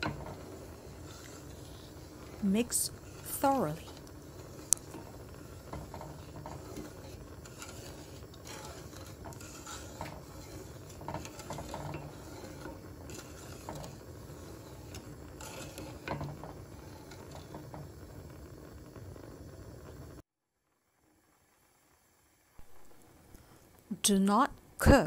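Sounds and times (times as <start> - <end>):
wooden spoon stirring in metal pot: 0.0 - 19.2
low steady hiss: 0.0 - 25.0.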